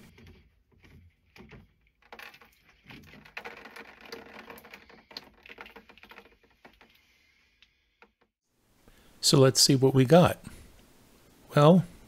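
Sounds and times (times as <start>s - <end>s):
plastic threads scraping: 0.0s - 8.3s.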